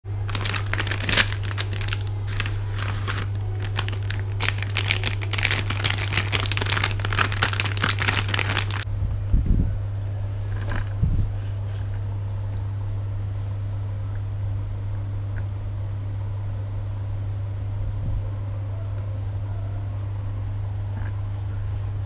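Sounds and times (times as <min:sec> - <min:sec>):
steady low hum: 0:00.0 - 0:22.0
plastic wrapper crinkling: 0:00.1 - 0:08.8.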